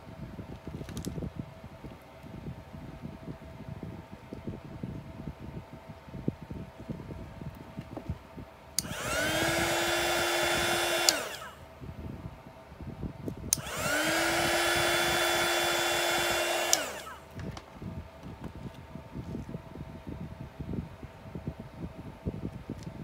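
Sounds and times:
heat gun switch click: 8.8s - 11.5s, 13.5s - 17.2s
heat gun motor whine and hiss: 8.8s - 11.7s, 13.5s - 17.6s.

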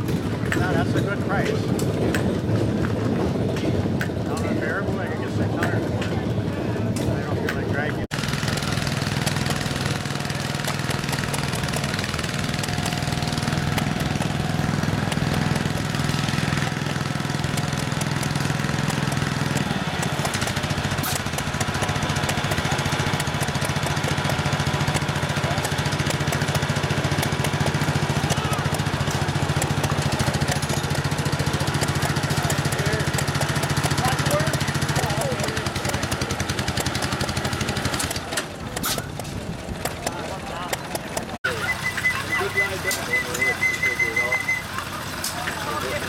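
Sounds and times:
garden tractor engine running: 0.0s - 46.0s.

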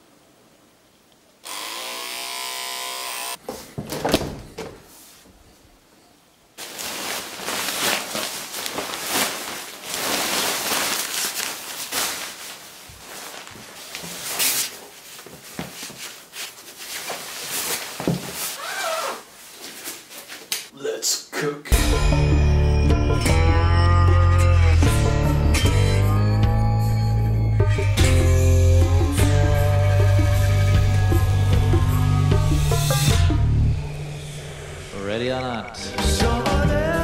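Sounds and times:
electric beard trimmer buzzing: 1.4s - 3.4s
protective suit rustling: 6.6s - 20.7s.

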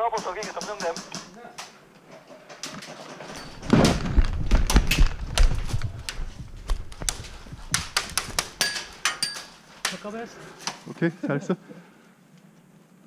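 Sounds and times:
low rumble of camera movement: 3.4s - 8.5s.

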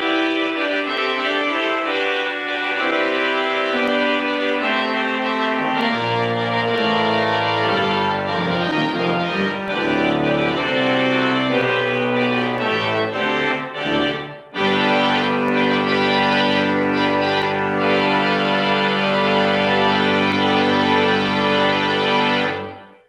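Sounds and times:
church organ playing chords: 0.0s - 23.0s.

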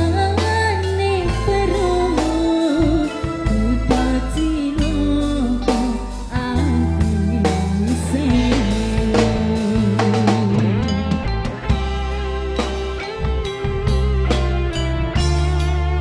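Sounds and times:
woman singing: 0.0s - 11.4s
live band playing: 0.0s - 16.0s
hand drums: 7.4s - 16.0s.

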